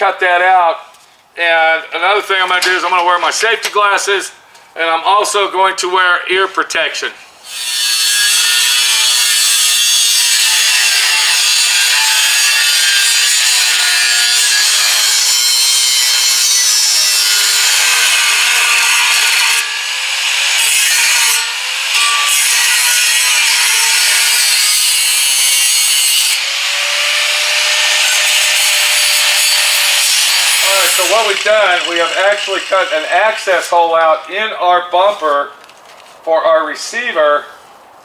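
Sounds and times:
cutoff wheel grinding metal: 7.5 - 33.4.

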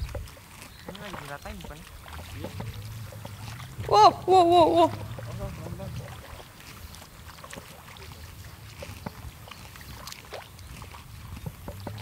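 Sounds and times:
legs sloshing through water and mud: 0.0 - 12.0
low steady rumble: 1.8 - 7.1.

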